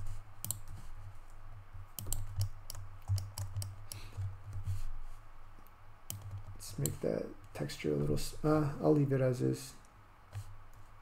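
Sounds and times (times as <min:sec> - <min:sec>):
low steady hum: 0:00.0 - 0:11.0
keyboard and mouse clicks: 0:00.4 - 0:00.8, 0:01.9 - 0:04.8, 0:05.6 - 0:07.6.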